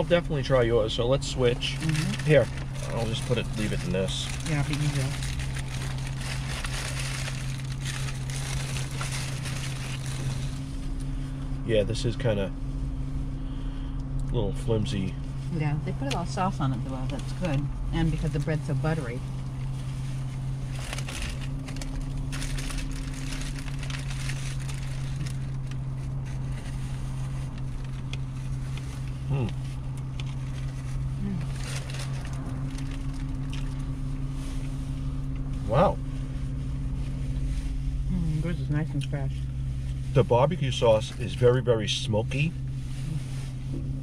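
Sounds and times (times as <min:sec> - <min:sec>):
car hum: 0:00.0 - 0:44.0
chewing and crunching food: 0:01.6 - 0:10.6, 0:20.6 - 0:33.9
paper wrappers rustling: 0:01.6 - 0:10.7, 0:20.6 - 0:29.1, 0:30.0 - 0:33.9.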